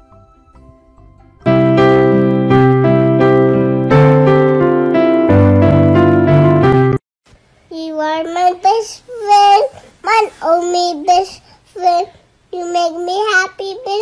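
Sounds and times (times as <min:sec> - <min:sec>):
piano chords with melody: 0:00.0 - 0:07.0.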